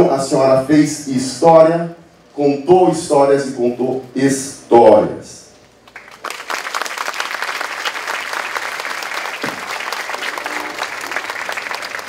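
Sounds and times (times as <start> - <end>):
audience applauding: 5.9 - 12.0.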